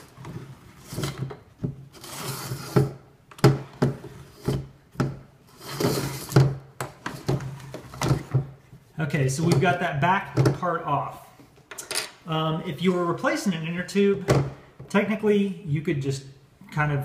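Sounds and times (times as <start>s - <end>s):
rubber tire scraping along rim: 1.9s - 3.0s.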